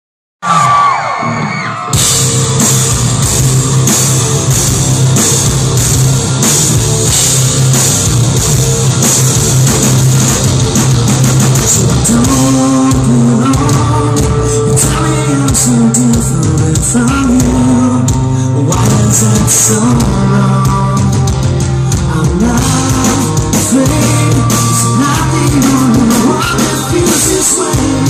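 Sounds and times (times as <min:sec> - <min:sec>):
distorted electric guitars: 0:00.5 - 0:28.0
bass guitar: 0:00.6 - 0:28.0
drum kit: 0:01.8 - 0:28.0
person singing: 0:11.6 - 0:28.0.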